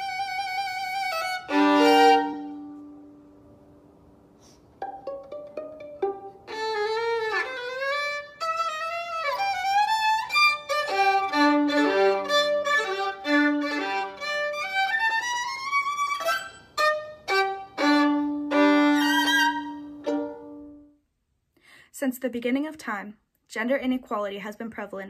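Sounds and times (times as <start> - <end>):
solo violin: 0.0 - 3.1, 4.8 - 20.9.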